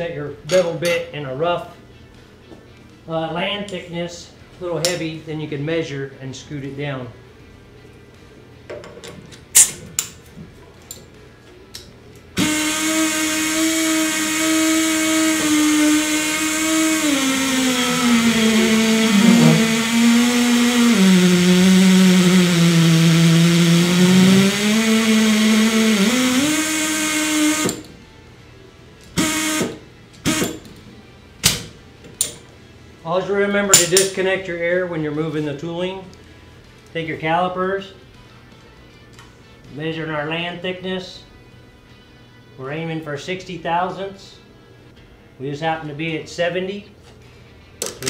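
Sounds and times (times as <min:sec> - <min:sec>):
pneumatic air motor whining: 0:12.4 - 0:27.9, 0:29.2 - 0:30.6.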